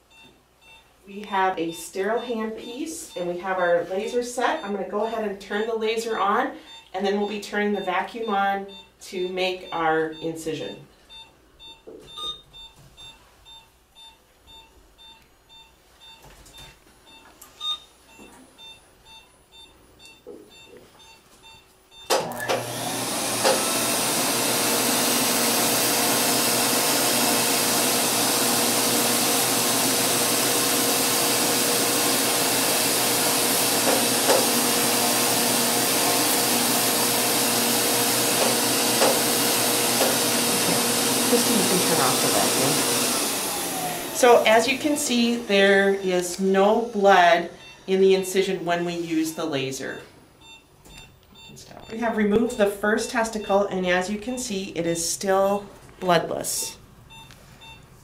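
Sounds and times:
short regular beeps: 0.0 - 22.3, 44.2 - 54.0, 56.7 - 58.0.

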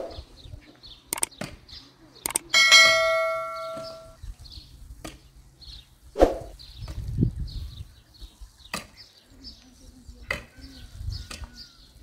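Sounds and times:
faint high chirps: 2.2 - 4.2
notification bell chime: 2.6 - 4.2.

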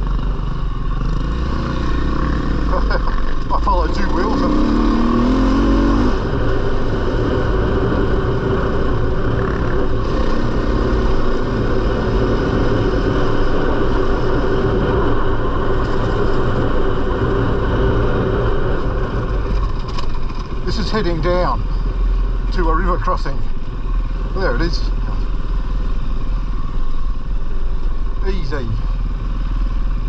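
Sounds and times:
dirt bike engine running: 0.0 - 30.0.

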